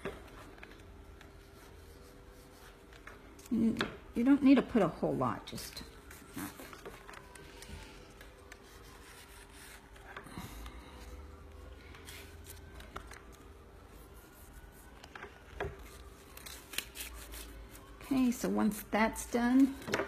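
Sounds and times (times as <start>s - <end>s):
rubbing and rustling of cardstock: 5.6s - 18.8s.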